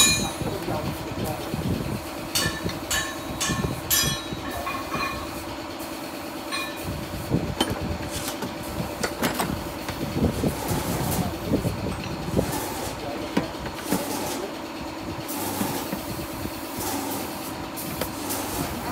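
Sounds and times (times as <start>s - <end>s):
steady machine hum: 0.0s - 18.9s
sharp knocks and clatter: 2.3s - 5.4s.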